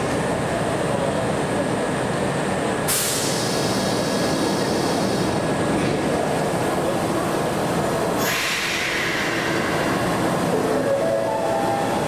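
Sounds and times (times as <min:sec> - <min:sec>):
train equipment running: 0:00.0 - 0:12.0
air hiss: 0:02.9 - 0:05.4, 0:08.2 - 0:09.6.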